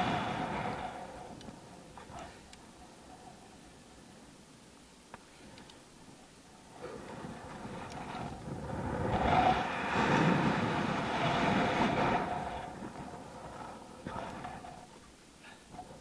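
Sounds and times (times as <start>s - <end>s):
wind rushing over microphone: 0.0s - 2.5s, 6.7s - 15.0s.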